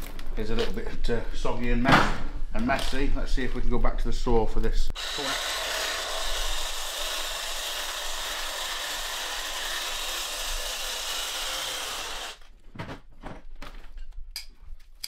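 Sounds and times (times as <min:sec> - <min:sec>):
reciprocating saw cutting roots: 0:05.0 - 0:12.4.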